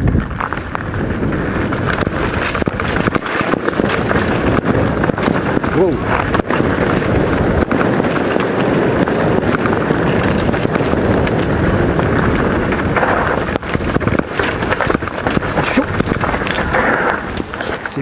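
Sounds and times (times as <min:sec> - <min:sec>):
bike rattling over bumps: 0:00.0 - 0:18.0
bike tyres on stones and gravel: 0:00.0 - 0:18.0
wind noise on microphone: 0:00.0 - 0:18.0.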